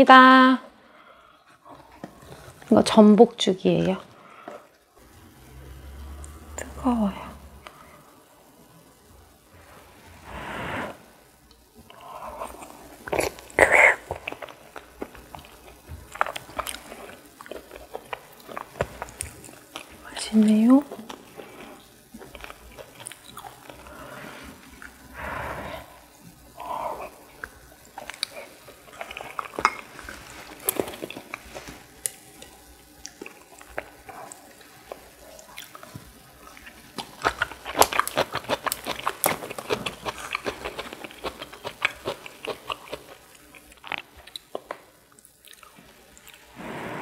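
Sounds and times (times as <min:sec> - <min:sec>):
person chewing: 0:11.5 - 0:20.0, 0:20.9 - 0:46.5.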